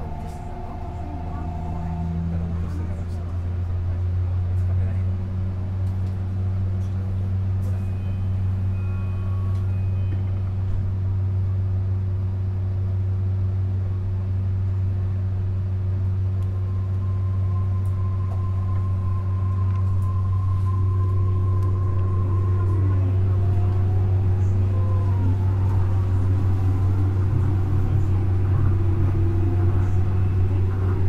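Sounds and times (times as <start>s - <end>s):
thin whine: 0.0s - 3.7s, 16.2s - 31.0s
low hum inside monorail car: 0.0s - 31.0s.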